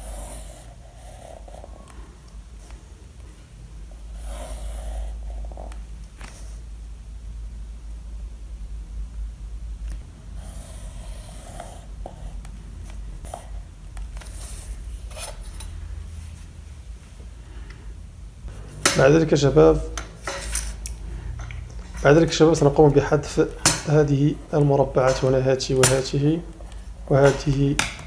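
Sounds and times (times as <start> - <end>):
pencil scratching on paper: 0.0 - 1.9
low steady hum: 0.0 - 28.0
man talking: 18.8 - 20.0, 22.0 - 28.0.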